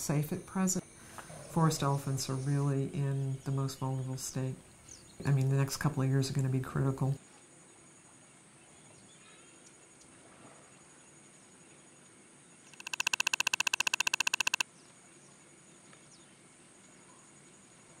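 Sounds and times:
high insect whine: 12.7 - 14.6
rapid clicking trill: 12.7 - 14.6.

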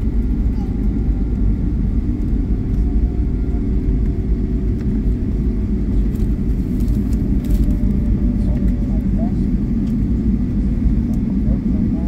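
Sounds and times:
airliner cabin rumble while taxiing: 0.0 - 12.0
faint hum: 0.0 - 12.0.

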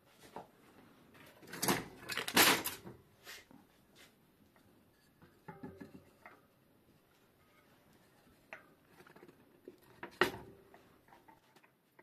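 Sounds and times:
tools clattering on workbench: 1.3 - 3.0.

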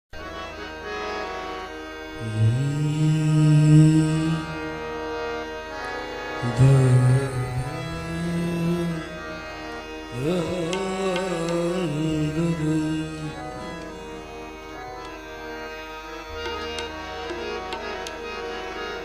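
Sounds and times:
wavering melody over drone: 2.2 - 19.0
tabla strokes: 16.3 - 18.4.

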